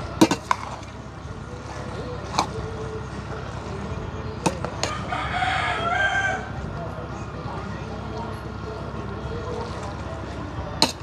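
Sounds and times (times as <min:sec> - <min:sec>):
rooster crowing: 0:04.9 - 0:06.6.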